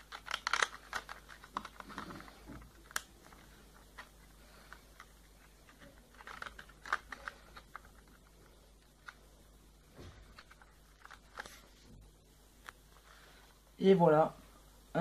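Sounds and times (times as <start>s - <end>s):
plastic strips clicking: 0.0s - 4.1s, 4.7s - 8.2s.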